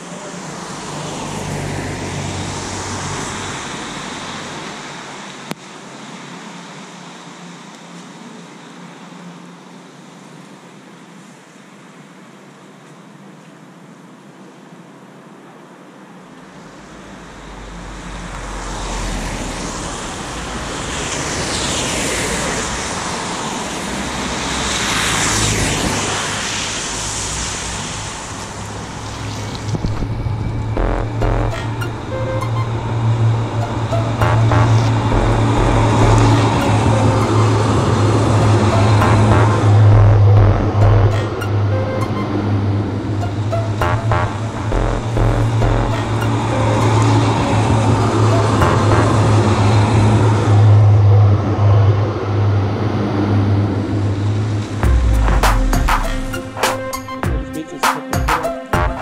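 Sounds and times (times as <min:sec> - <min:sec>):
passing vehicle hum: 0:00.0 - 0:08.9, 0:16.0 - 0:59.0
tyres hissing on wet road: 0:00.0 - 0:13.3, 0:14.3 - 0:30.6
rain on wet pavement: 0:18.3 - 0:30.0.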